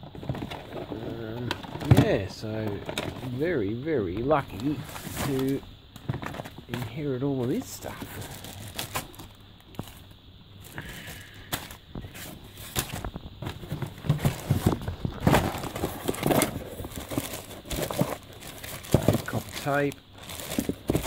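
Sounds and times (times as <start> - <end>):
plastic bags crinkling: 4.3 - 21.0.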